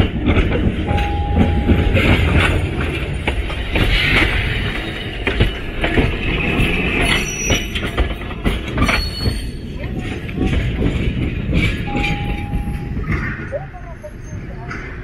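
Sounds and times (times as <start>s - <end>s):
streetcar wheels rumbling and clacking: 0.0s - 15.0s
short steady tone: 0.9s - 2.0s, 11.9s - 12.9s
wheels squealing on curved track: 6.6s - 7.9s, 8.8s - 9.7s.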